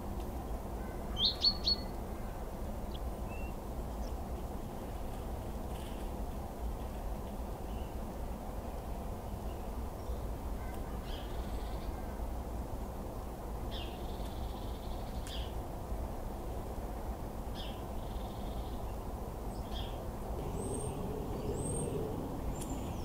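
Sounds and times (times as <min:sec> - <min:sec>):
songbirds calling: 0:00.4 - 0:12.3, 0:13.1 - 0:15.6, 0:17.5 - 0:23.0
low background rumble: 0:19.5 - 0:23.0.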